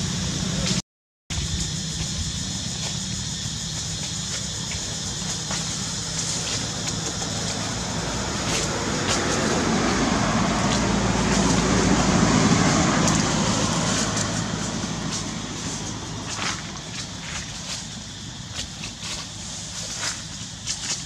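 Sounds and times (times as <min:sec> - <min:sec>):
vehicle passing by: 0:04.3 - 0:17.9.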